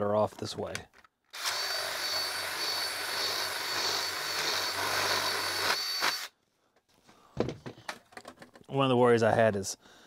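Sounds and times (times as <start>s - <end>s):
cordless drill whining: 1.3s - 6.4s.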